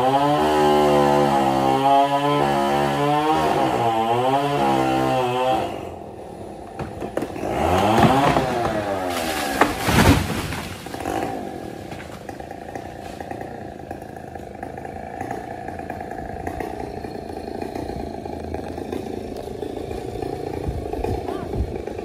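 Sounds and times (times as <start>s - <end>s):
chainsaw idling: 0.0s - 22.0s.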